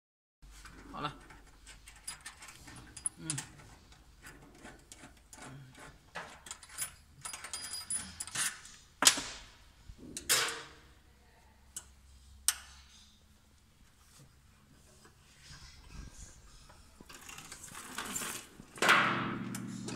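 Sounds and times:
hand tools clicking and scraping: 0.6 - 8.8
small metallic clinks: 1.8 - 3.5, 6.4 - 8.5.

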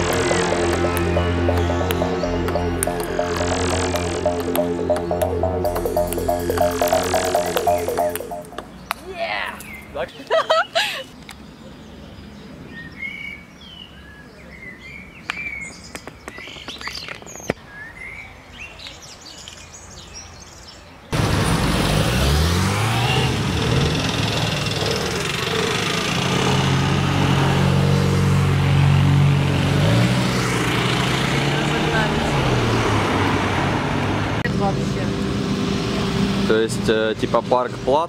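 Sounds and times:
street traffic noise: 0.0 - 6.5, 20.9 - 38.0.

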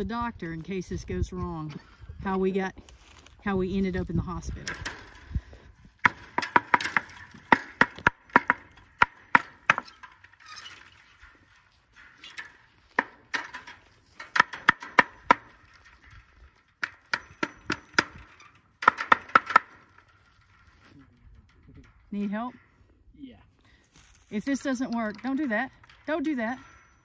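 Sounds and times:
hammer striking metal: 16.8 - 18.2.

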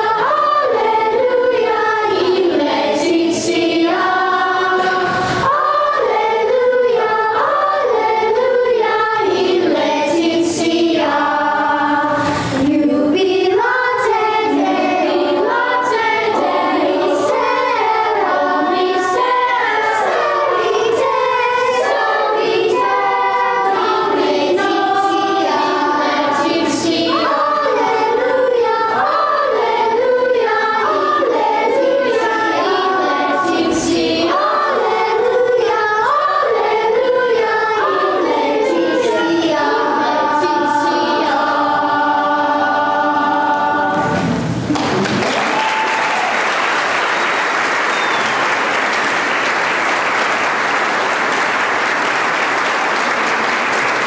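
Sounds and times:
children's choir singing: 0.0 - 54.0
audience applauding: 44.7 - 54.0.

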